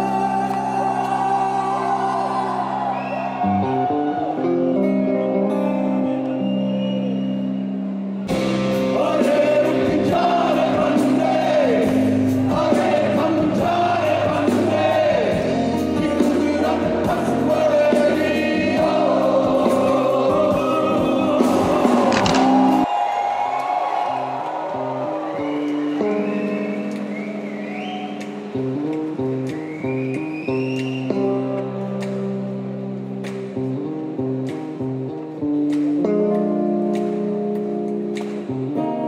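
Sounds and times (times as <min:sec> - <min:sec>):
person singing: 0:00.0 - 0:03.0, 0:08.6 - 0:22.9
drums: 0:08.1 - 0:22.9
folk-rock band music: 0:08.2 - 0:22.9.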